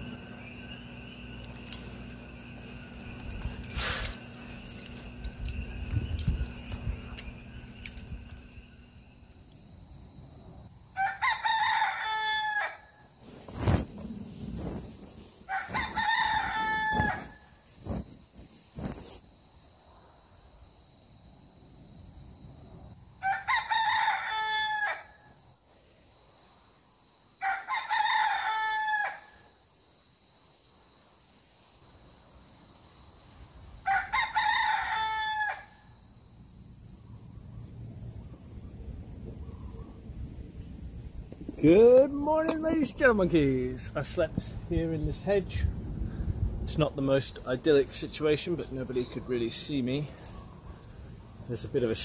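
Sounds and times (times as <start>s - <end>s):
rooster crowing: 10.9s - 13.0s, 15.5s - 17.6s, 23.2s - 25.3s, 27.4s - 29.6s, 33.8s - 36.0s.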